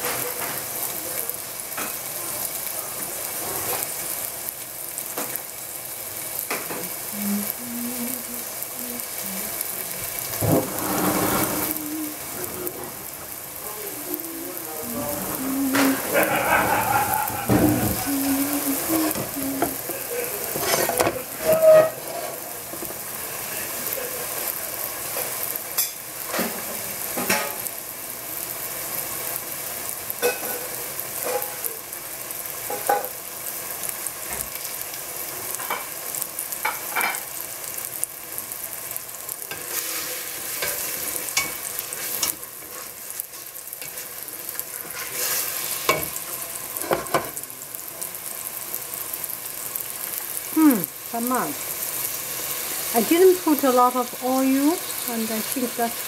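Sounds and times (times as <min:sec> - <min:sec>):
mushrooms sizzling in oil: 0:00.0 - 0:56.0
oil crackling and popping: 0:00.0 - 0:56.0.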